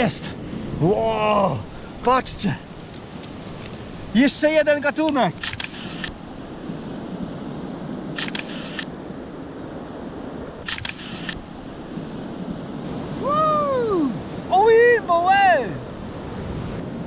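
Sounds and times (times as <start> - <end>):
sea surf washing: 0.0 - 17.0
camera shutter burst: 5.4 - 6.2, 8.2 - 8.9, 10.7 - 11.4.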